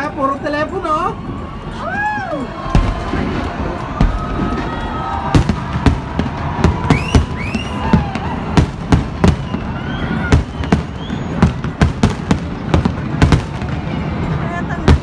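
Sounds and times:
rising firework whistles: 1.4s - 14.5s
firework shells bursting: 2.6s - 13.9s.

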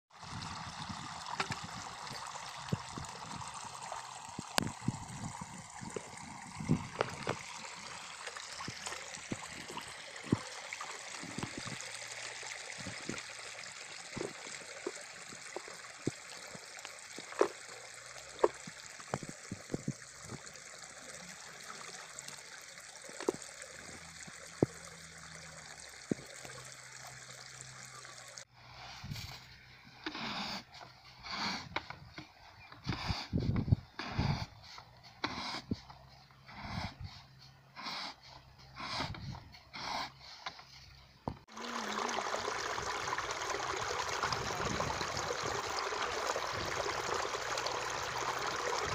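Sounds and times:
water rushing: 0.1s - 28.5s, 41.5s - 48.9s
bucket splashing water: 41.5s - 48.9s.

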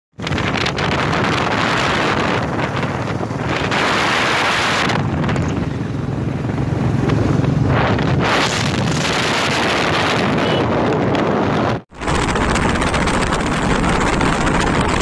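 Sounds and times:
motorcycle engine running: 0.2s - 10.2s
wind buffeting microphone: 0.2s - 15.0s.

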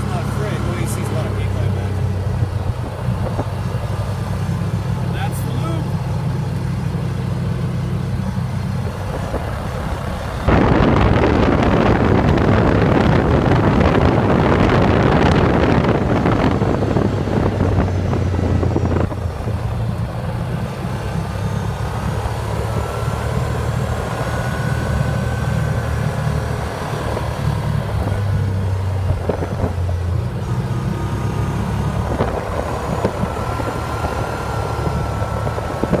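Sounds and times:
car engine humming: 0.0s - 36.0s
tyre and road noise: 0.0s - 36.0s
loud rushing noise: 10.3s - 19.4s.

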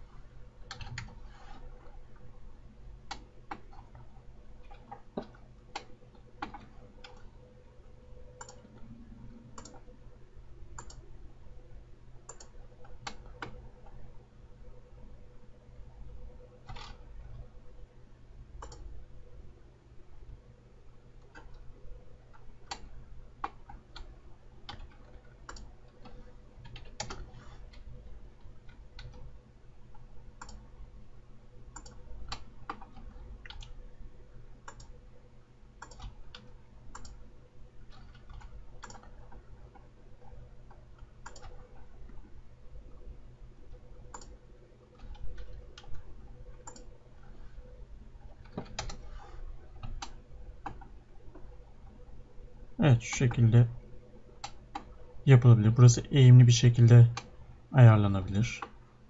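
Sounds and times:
mouse and keyboard clicks: 18.6s - 18.9s.

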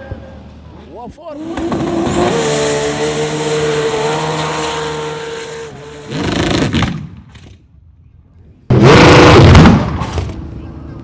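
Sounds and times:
engine at full throttle: 1.3s - 6.8s, 8.7s - 10.6s.

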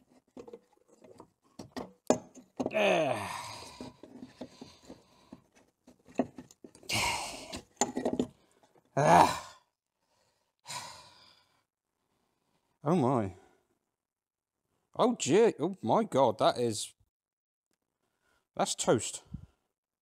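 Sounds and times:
man grunting and sighing: 2.6s - 4.1s, 6.9s - 7.6s, 8.9s - 9.7s.

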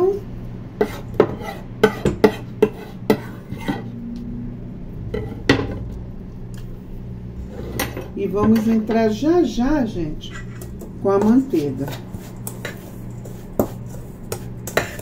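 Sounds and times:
metal utensils clinking on bowl: 10.2s - 15.0s.

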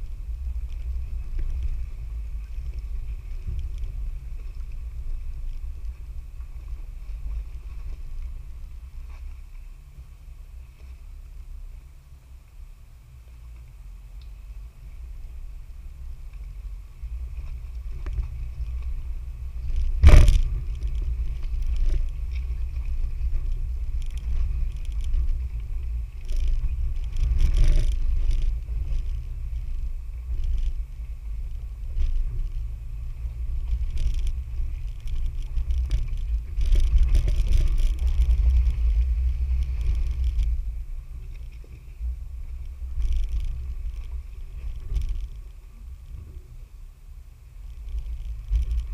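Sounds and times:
vehicle low rumble: 0.0s - 48.9s
vehicle knocks and clunks: 16.2s - 46.5s.

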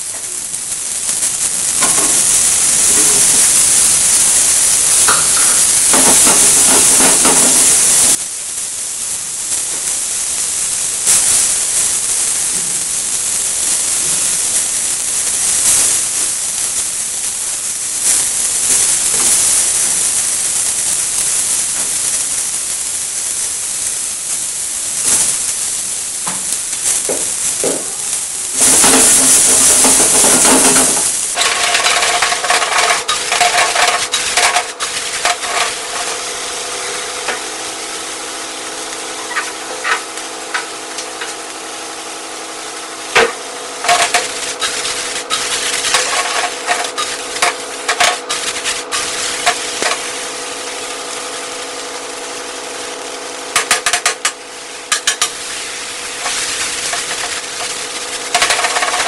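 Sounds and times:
vegetables stirred in a pan: 0.0s - 8.3s, 24.8s - 59.0s
loud hissing burst: 0.0s - 59.0s
vegetables sizzling in a pan: 0.0s - 59.0s.

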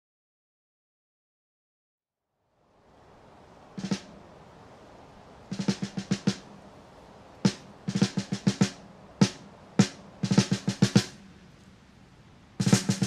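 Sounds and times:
drum rolls and fills: 3.7s - 4.3s, 5.5s - 11.5s, 12.6s - 13.0s.

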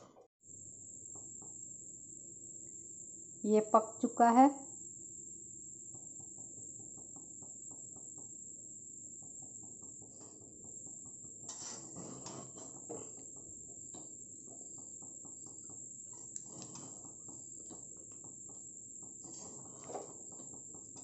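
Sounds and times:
spatula scraping noodles in a pan: 11.2s - 13.2s, 16.1s - 17.4s, 19.1s - 20.5s.

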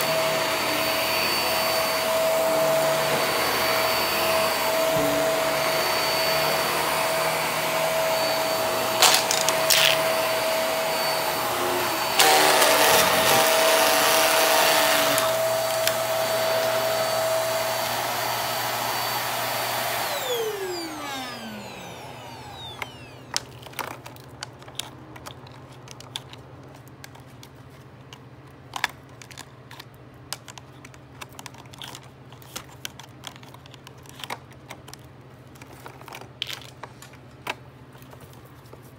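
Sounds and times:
vacuum cleaner running on carpet: 0.0s - 23.4s
motor winding down: 1.9s - 16.7s, 19.6s - 23.3s.

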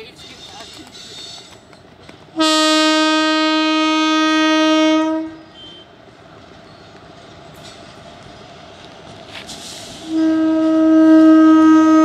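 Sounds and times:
locomotive horn blast: 2.4s - 6.0s, 10.0s - 12.0s.

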